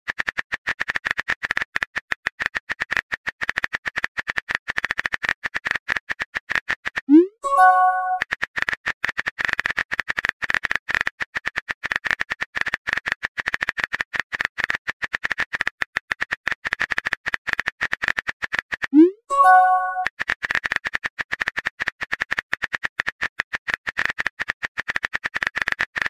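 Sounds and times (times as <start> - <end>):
short chime: 7.4 - 8.2, 19.3 - 20.1.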